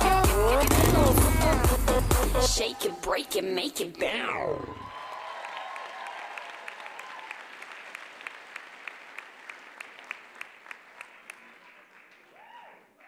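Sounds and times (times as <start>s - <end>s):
audience applauding: 4.8s - 12.8s.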